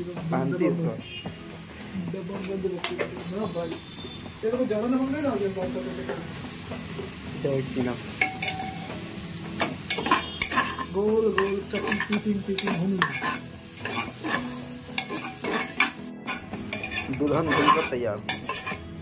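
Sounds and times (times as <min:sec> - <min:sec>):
vegetables sizzling in oil: 0:00.0 - 0:19.0
metal spatula scraping pot: 0:08.2 - 0:08.8, 0:09.9 - 0:18.9.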